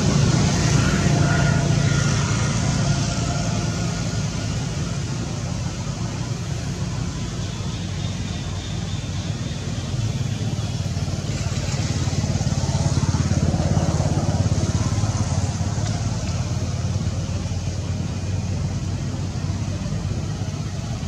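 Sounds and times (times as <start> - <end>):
motor engine running: 0.0 - 21.0.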